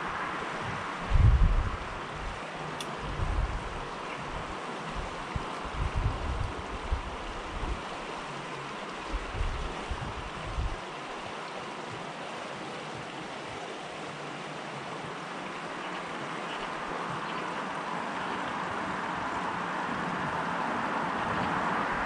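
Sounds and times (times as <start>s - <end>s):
wind rumbling on microphone: 0.0s - 13.9s, 16.0s - 22.0s.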